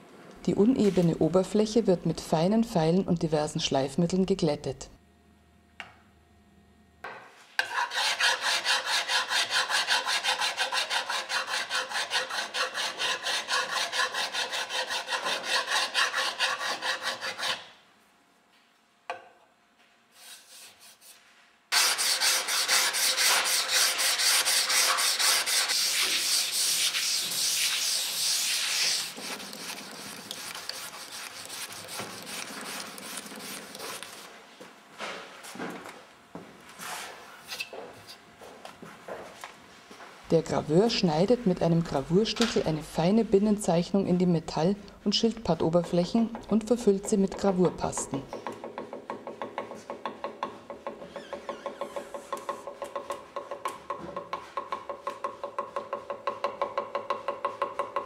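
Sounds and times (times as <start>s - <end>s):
file rasping on wood: 7.6s - 17.7s, 21.7s - 34.2s.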